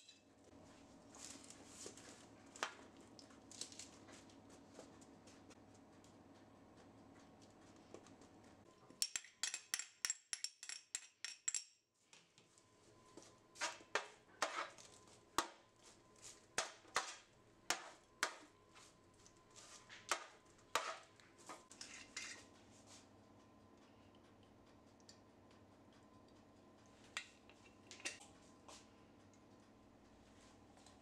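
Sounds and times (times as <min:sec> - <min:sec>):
dishes and utensils clicking: 0:27.2 - 0:28.2.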